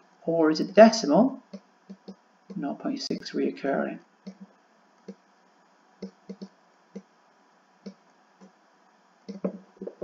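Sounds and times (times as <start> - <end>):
faint background hiss: 0.0 - 10.0
stylus tapping on screen: 1.5 - 2.6, 4.2 - 5.3, 6.0 - 7.1, 9.3 - 10.0.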